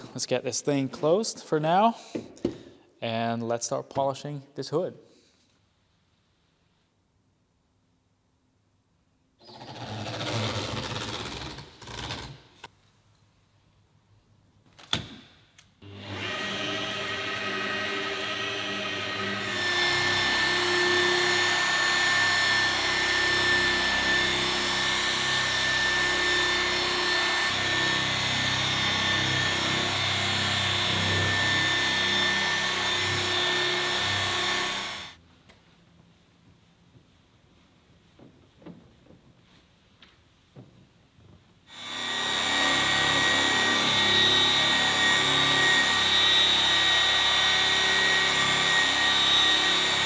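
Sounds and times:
rotary polisher motor: 9.4s - 12.3s, 15.8s - 35.2s, 41.7s - 50.0s.

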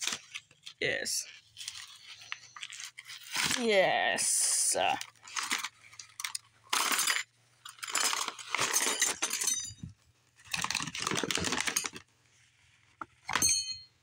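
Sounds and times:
cardboard box and paper rustling: 0.0s - 4.0s, 5.0s - 6.2s, 10.4s - 13.2s
metal straws clinking: 4.6s - 9.9s.

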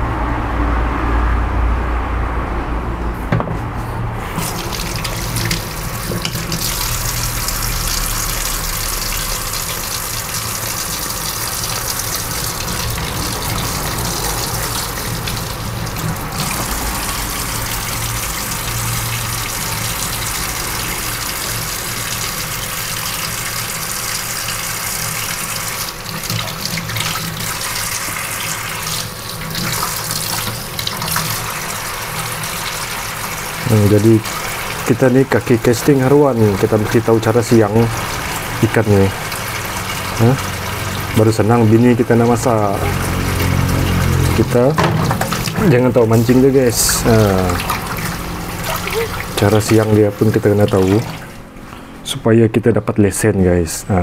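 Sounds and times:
low rumble: 0.0s - 4.3s
tap water running into sink: 4.2s - 51.5s.

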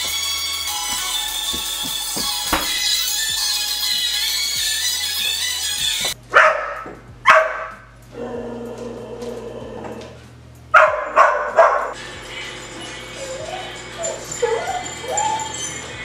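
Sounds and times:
pop music: 0.0s - 6.2s, 12.0s - 16.0s
dog barking: 6.3s - 7.9s, 10.7s - 12.0s.

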